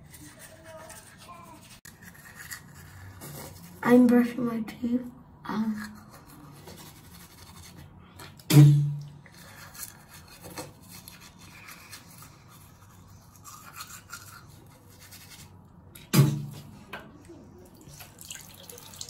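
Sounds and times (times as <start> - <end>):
toothbrush scrubbing teeth: 0.0 - 4.0, 5.5 - 7.9, 9.2 - 15.7.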